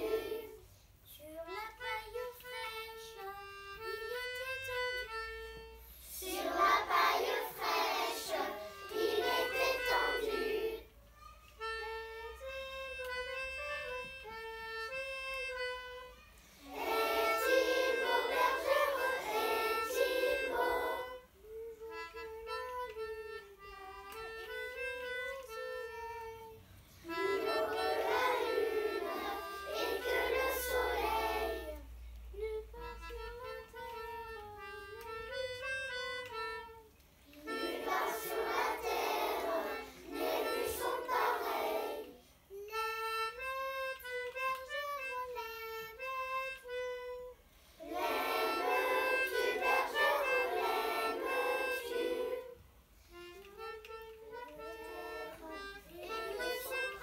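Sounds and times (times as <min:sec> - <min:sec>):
children singing in unison: 0:00.0 - 0:00.6, 0:06.2 - 0:10.8, 0:16.6 - 0:21.2, 0:27.1 - 0:31.8, 0:37.4 - 0:42.2, 0:47.8 - 0:52.6, 0:54.6 - 0:57.0
instrumental backing track: 0:00.0 - 0:57.0
reedy wind instrument melody: 0:00.0 - 0:57.0.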